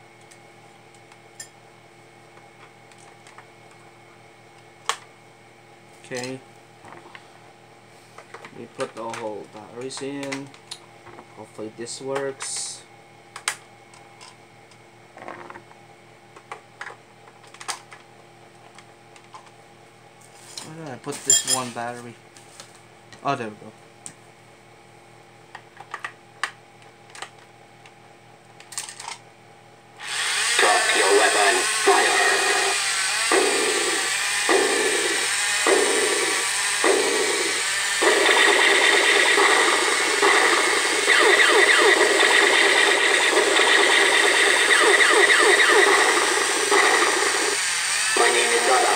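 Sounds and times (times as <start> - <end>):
toy robot motor and gearbox: 30.0 - 48.9.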